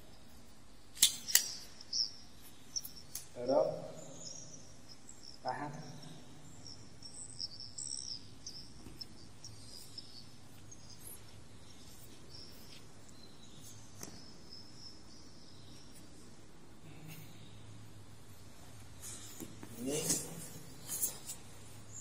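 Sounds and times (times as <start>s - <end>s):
faint high-pitched chirping: 0.0s - 22.0s
sharp clicks: 0.9s - 2.0s.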